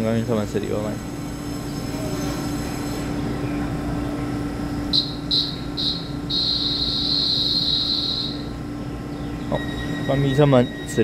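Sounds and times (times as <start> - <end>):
steady train hum: 0.0 - 11.0
high-pitched train signal blasts: 4.9 - 8.7, 9.4 - 11.0.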